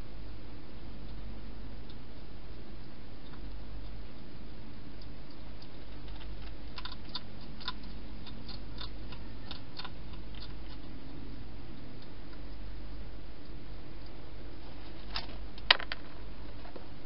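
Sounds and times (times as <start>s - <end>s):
steady low hum: 0.0s - 17.0s
hedgehog crunching food: 5.0s - 12.5s.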